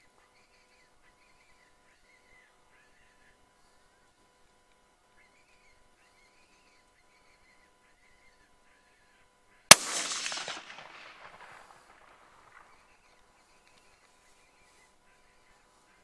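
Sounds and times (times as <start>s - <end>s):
rifle shot with echo: 9.7s - 13.1s.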